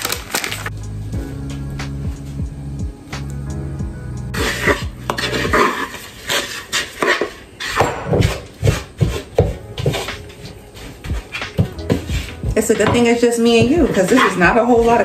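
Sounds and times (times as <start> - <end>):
background music: 0.0 - 6.1, 7.8 - 15.0
wooden spoon scraping dough in bowl: 4.4 - 15.0.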